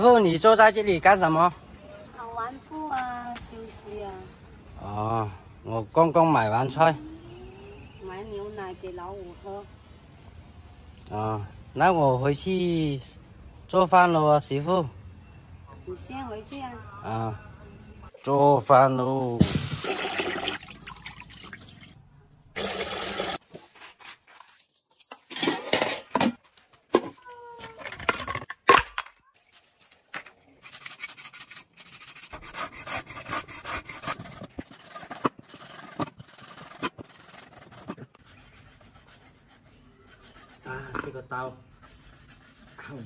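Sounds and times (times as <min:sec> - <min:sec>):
water pouring: 0:19.4 - 0:22.0, 0:22.6 - 0:23.4
cleaver cutting on wooden board: 0:30.7 - 0:38.3.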